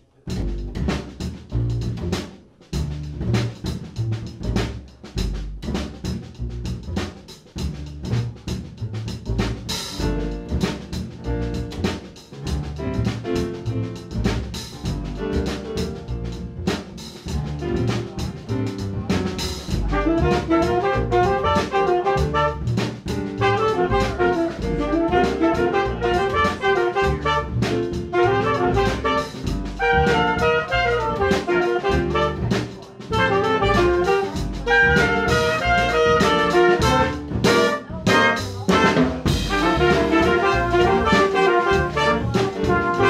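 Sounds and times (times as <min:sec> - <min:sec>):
drum kit beat: 0:00.0 - 0:43.0
upright bass walking: 0:00.2 - 0:43.0
piano: 0:08.1 - 0:43.0
trumpet: 0:17.6 - 0:43.0
tenor saxophone: 0:19.8 - 0:22.8, 0:23.4 - 0:43.0.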